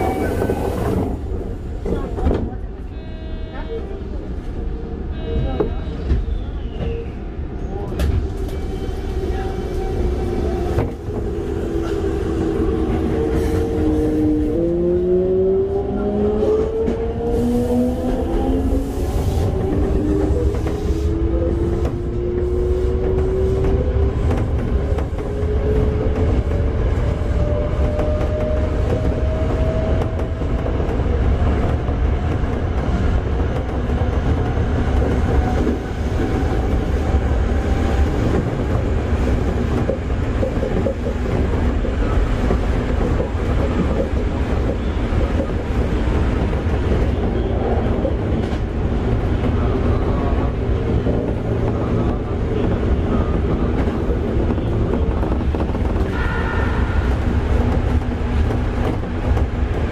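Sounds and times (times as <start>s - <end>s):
wheels rumbling on rail: 0.0s - 59.9s.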